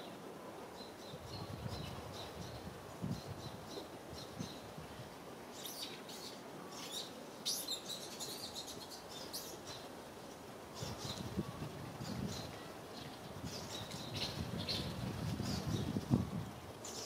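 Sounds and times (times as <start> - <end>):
small birds chirping: 5.5 - 17.0.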